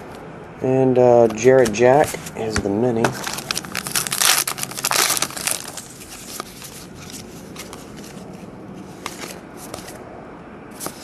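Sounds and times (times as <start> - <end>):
cards rustling: 1.2 - 10.0
wrapper crinkling: 3.1 - 8.1.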